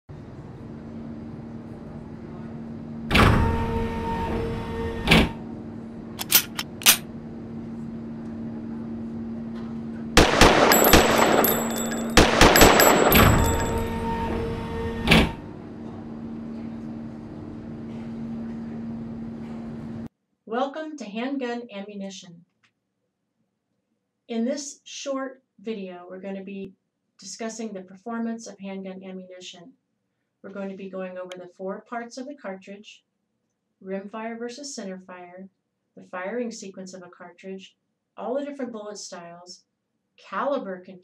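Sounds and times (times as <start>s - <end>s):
handgun shots: 6.2s - 7.0s, 10.2s - 13.8s
low hum: 10.2s - 20.1s.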